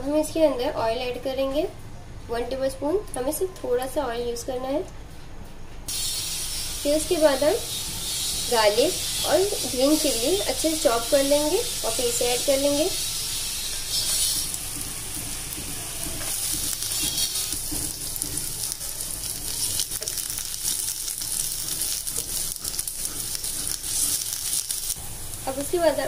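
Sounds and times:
garlic sizzling in hot oil: 5.9 - 26.0
oil crackling spatters: 9.6 - 26.0.

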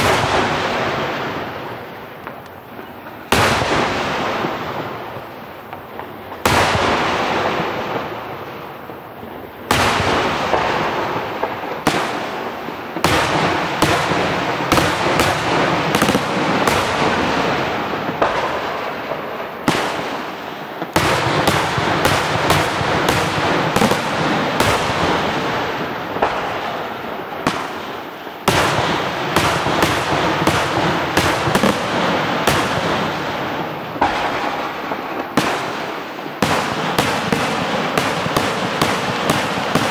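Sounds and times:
firework crackle and rumble: 0.0 - 39.9
firework shells bursting: 9.8 - 26.6, 28.4 - 39.9.

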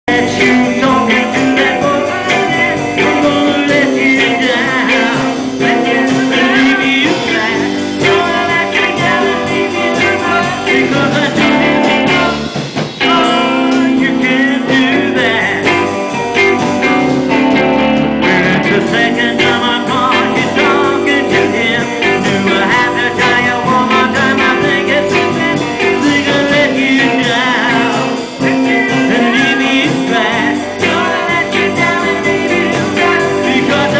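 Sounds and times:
electric guitars: 0.0 - 33.9
person singing: 0.1 - 33.9.

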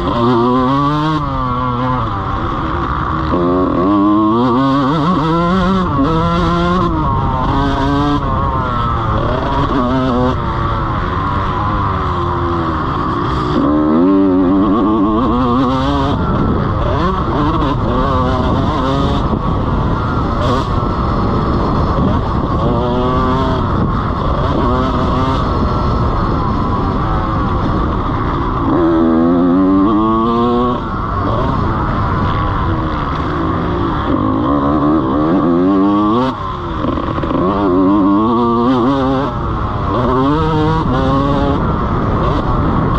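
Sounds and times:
motocross bike engine revving: 0.0 - 42.9.

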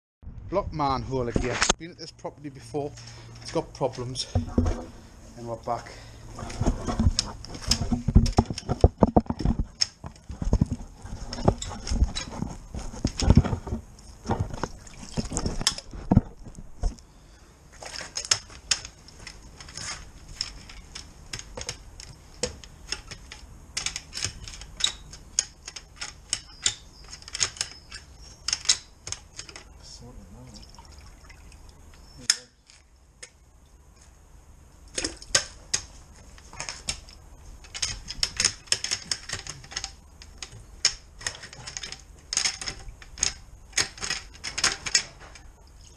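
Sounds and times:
water sloshing and splashing: 6.2 - 17.0, 29.4 - 32.0
water dripping: 30.4 - 32.1.

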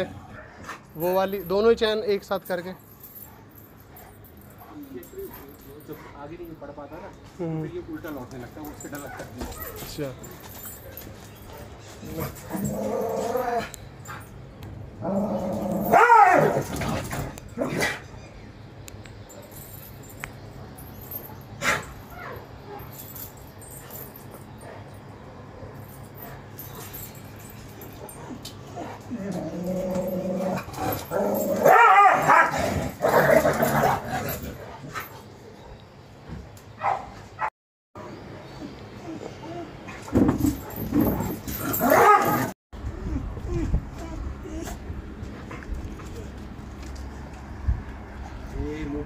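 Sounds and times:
dog whining and yelping: 28.2 - 34.3, 40.6 - 44.9.

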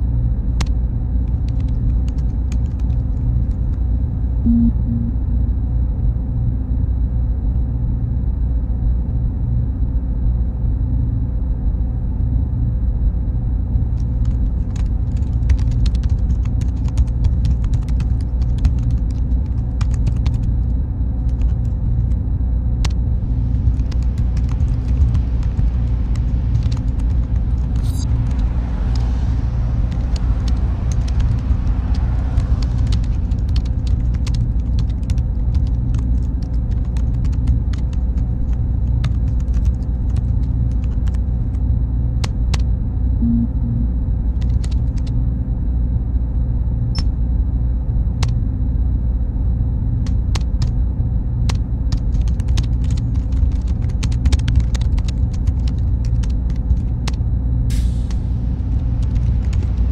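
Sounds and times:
computer servers droning: 0.0 - 59.9
faint high whine: 3.8 - 15.0, 19.0 - 39.0, 39.9 - 52.0
keyboard typing: 4.5 - 5.1, 14.2 - 20.5, 23.7 - 28.1, 30.0 - 38.2, 38.9 - 41.2, 51.5 - 56.9, 59.0 - 59.8
car passing: 25.3 - 34.6.

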